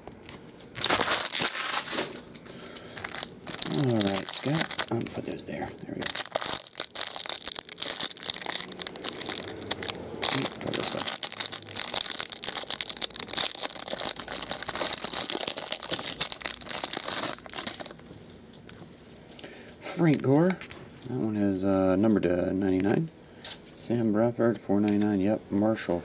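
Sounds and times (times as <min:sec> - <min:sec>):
plastic wrapper crinkling and tearing: 0:00.8 - 0:18.0.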